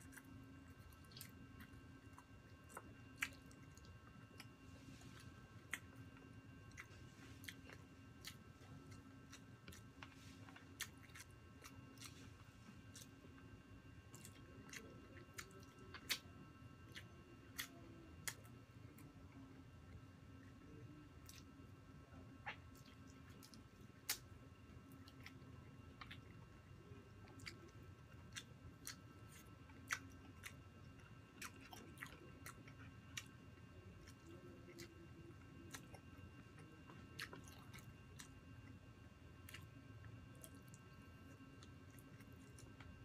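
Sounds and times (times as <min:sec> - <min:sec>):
person chewing and biting: 0:00.0 - 0:13.2, 0:27.2 - 0:33.3, 0:35.6 - 0:38.7
faint steady hum: 0:00.0 - 0:43.0.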